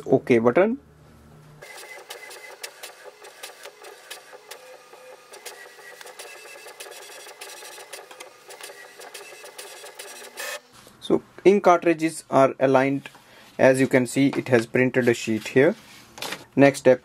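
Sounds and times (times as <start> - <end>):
inkjet printer printing: 1.6 - 10.7.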